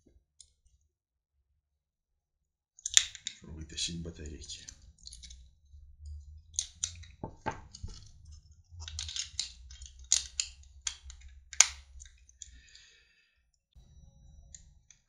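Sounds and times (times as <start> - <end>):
plastic clicks and rattles: 2.8 - 3.4, 4.2 - 5.4, 6.1 - 12.6
sharp plastic snap: 2.8 - 3.4, 8.9 - 12.0.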